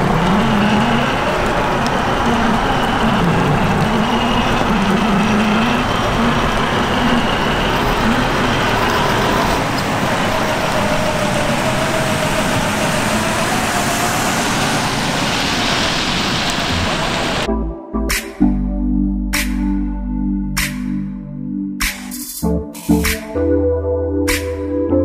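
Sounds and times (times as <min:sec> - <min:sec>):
water rushing: 0:00.0 - 0:17.5.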